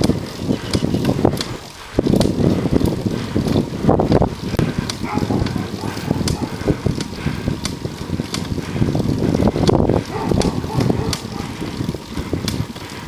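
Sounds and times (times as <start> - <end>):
bicycle road rumble: 0.0 - 13.0
sharp clicks or rattles: 0.0 - 13.0
wind buffeting microphone: 0.0 - 13.0.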